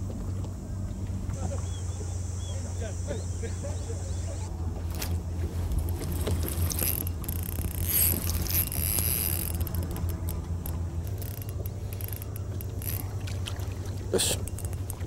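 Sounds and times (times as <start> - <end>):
steady low hum: 0.0 - 15.0
fishing reel whirring: 4.8 - 15.0.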